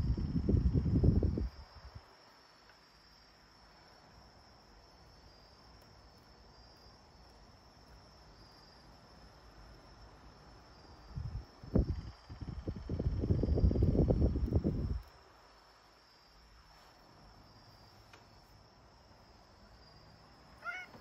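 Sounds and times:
insect trilling: 19.9 - 21.0.

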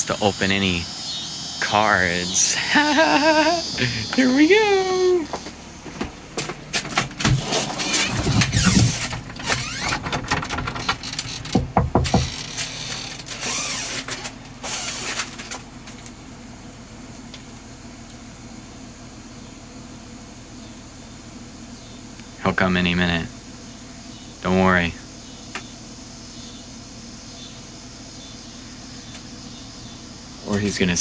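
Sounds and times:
knocking on wooden door: 11.5 - 12.4.

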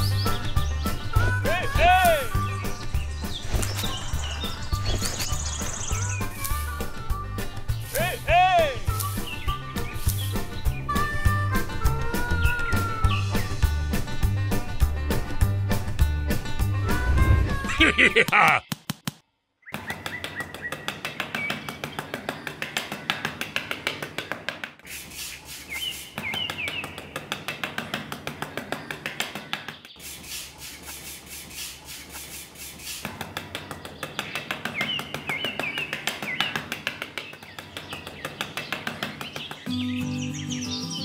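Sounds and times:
birds chirping: 0.0 - 18.8, 19.6 - 24.3, 24.9 - 41.0
metal trowel scraping sand: 8.8 - 10.4, 24.8 - 26.2, 30.0 - 33.1.

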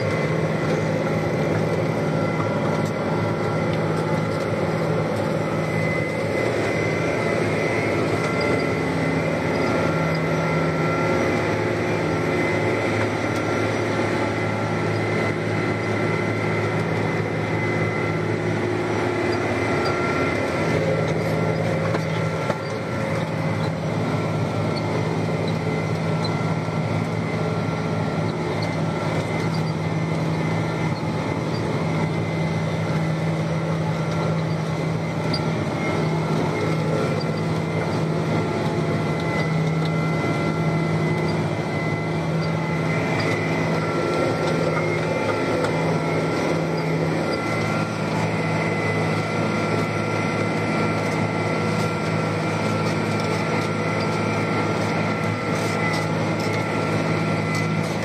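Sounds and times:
thin steady whine: 0.0 - 58.0
tractor diesel engine droning: 0.0 - 58.0.

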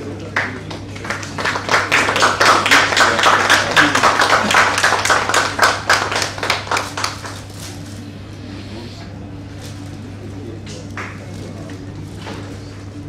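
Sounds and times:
audience applauding: 0.0 - 7.5
low room hum: 0.0 - 13.0.

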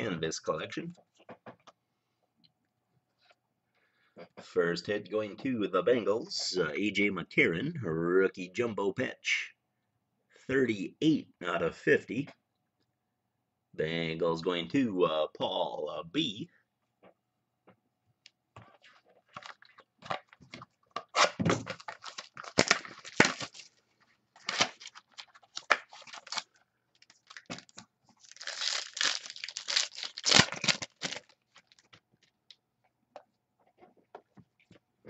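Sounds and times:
wrappers tearing and crinkling: 21.0 - 23.8, 24.4 - 31.9.

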